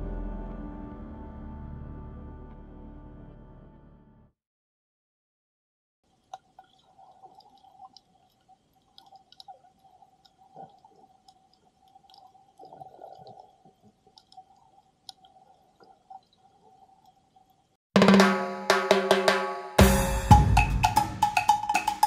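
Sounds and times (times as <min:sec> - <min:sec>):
underwater clicks and crackles: 0:06.1 - 0:17.8.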